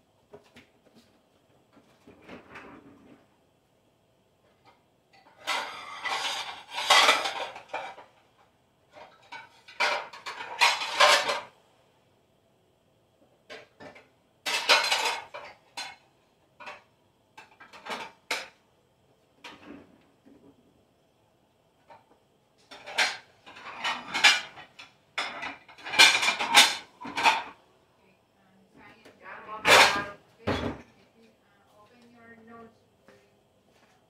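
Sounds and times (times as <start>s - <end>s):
dishes and cutlery clattering: 5.1s - 8.2s, 8.9s - 11.5s, 13.5s - 18.6s, 19.4s - 20.4s, 21.8s - 27.6s, 29.6s - 30.9s.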